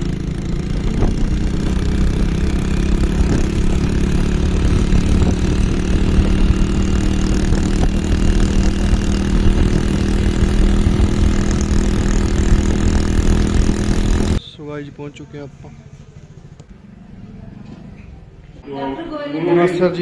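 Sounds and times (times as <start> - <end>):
motorcycle engine running: 0.0 - 14.4, 15.6 - 18.0
wind rumbling on microphone: 0.8 - 14.4.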